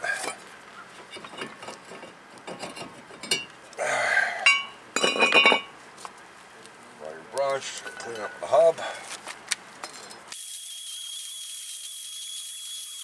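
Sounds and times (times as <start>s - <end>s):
metallic ringing: 4.4s - 5.7s.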